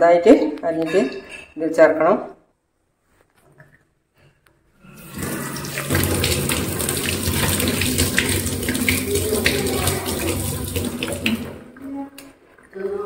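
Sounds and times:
hands rinsed under water: 4.9 - 11.8
water running into steel sink: 4.9 - 11.8.

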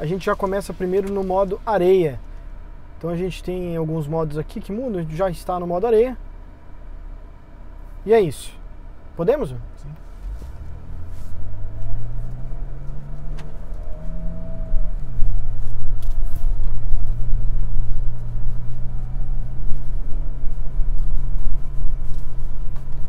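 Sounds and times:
truck engine accelerating: 0.0 - 4.1, 8.9 - 23.0.

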